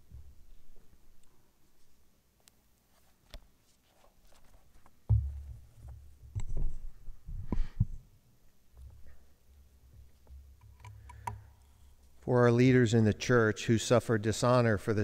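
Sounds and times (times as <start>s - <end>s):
sharp clicks and knocks: 5.1s - 6.8s, 8.8s - 12.2s
microphone handling thump: 5.1s - 8.0s.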